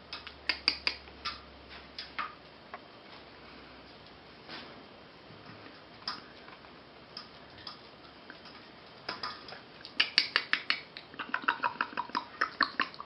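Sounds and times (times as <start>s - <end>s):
puppies' sharp clicks and taps: 0.1s - 2.8s, 5.4s - 11.1s.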